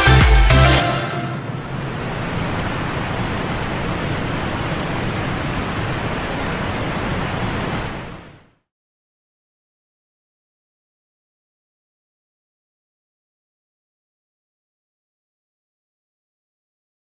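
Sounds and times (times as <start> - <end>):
waterfall rushing: 0.0 - 8.4.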